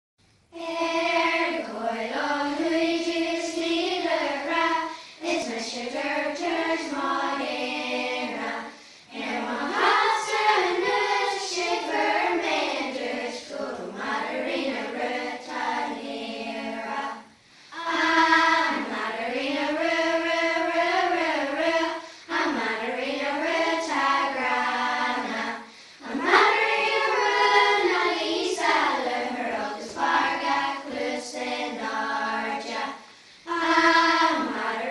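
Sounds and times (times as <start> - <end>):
children's choir singing: 0.5 - 34.9.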